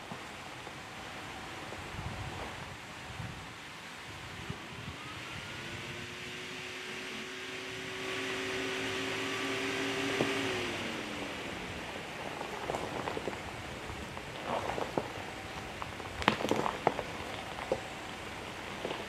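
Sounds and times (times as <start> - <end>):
van engine running: 5.0 - 19.0
tyres crunching over loose stones: 11.1 - 19.0.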